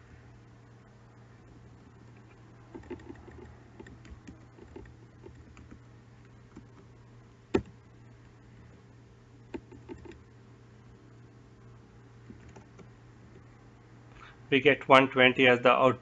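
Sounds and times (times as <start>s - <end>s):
faint low hum: 0.0s - 16.0s
keyboard typing: 2.7s - 5.8s, 9.5s - 10.2s, 12.3s - 12.9s.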